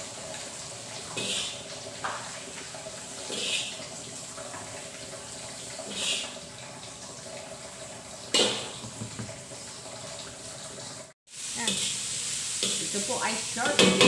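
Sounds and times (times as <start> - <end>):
food sizzling in a wok: 0.0 - 6.5, 11.0 - 14.0
metal spatula scraping wok: 3.3 - 3.8, 11.6 - 14.0.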